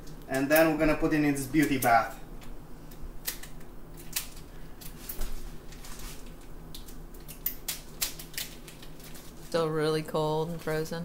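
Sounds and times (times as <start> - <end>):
plastic crinkling: 4.0 - 9.6.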